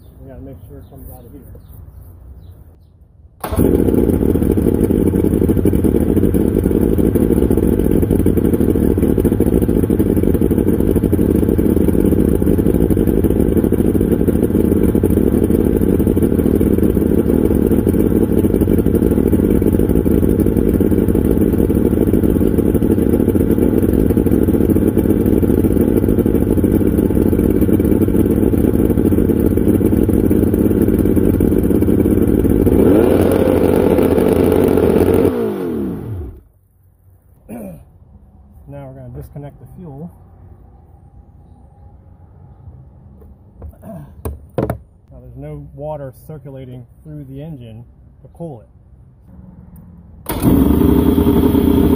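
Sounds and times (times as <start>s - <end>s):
outboard engine running: 3.4s - 36.4s, 50.2s - 51.9s
engine winding down to a stop: 3.4s - 36.5s, 49.2s - 51.9s.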